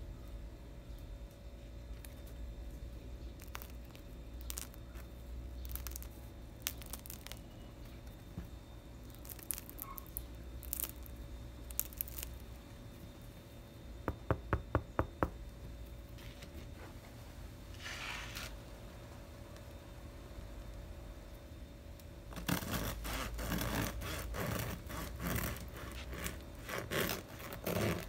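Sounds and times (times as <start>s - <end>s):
bread crust crackling: 1.1s - 13.6s, 20.7s - 28.0s
scratchy rustle: 17.7s - 18.6s, 22.3s - 28.0s.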